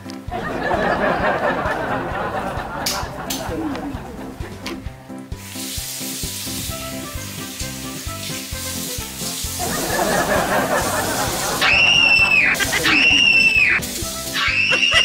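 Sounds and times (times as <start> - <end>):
background music: 0.0 - 15.0
tap water running into sink: 5.8 - 14.4.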